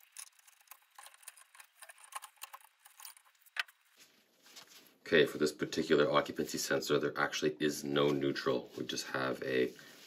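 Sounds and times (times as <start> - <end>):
pliers clicking and scraping wire: 0.0 - 3.8.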